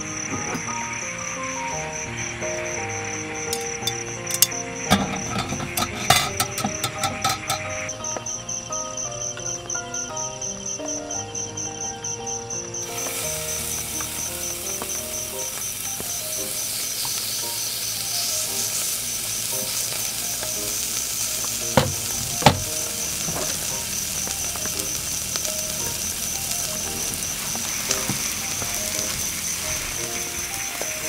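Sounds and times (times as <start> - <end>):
meat sizzling on grill: 0.1 - 10.8, 12.5 - 31.0.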